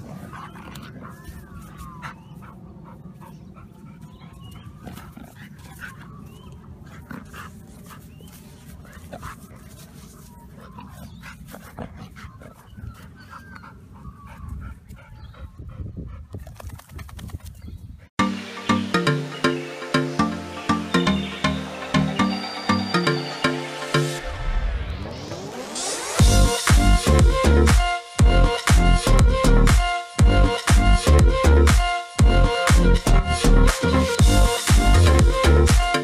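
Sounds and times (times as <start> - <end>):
dog vocal sounds: 0.0 - 16.7
loud electronic music: 18.2 - 36.0.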